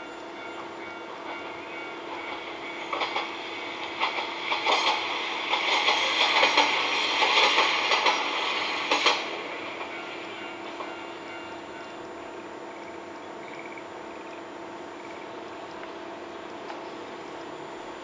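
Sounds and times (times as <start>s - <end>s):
train wheels clattering over joints: 1.2s - 11.0s.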